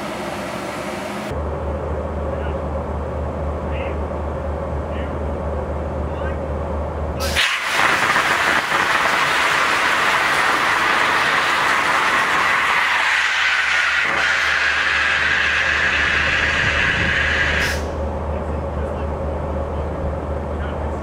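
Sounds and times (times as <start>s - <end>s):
rocket engine roaring: 7.2s - 19.1s.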